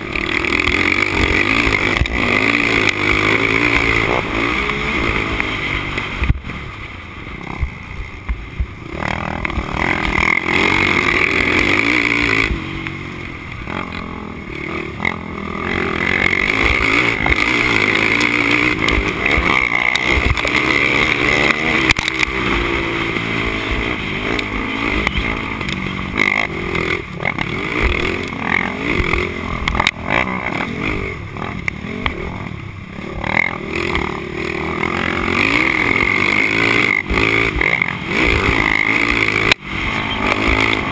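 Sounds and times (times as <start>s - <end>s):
quad engine revving: 0.0s - 6.4s, 8.8s - 40.9s.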